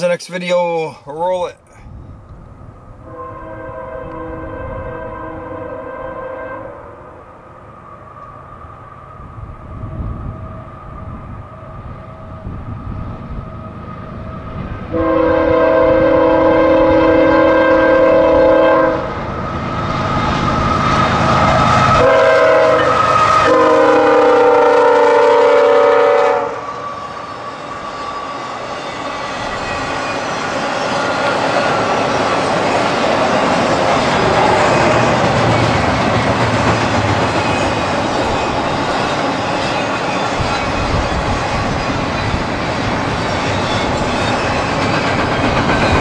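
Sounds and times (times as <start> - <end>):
diesel locomotive rumbling: 0.0 - 46.0
train air horn blasts: 3.0 - 8.4, 14.9 - 19.2, 20.7 - 26.9
train wheels clacking: 27.4 - 46.0.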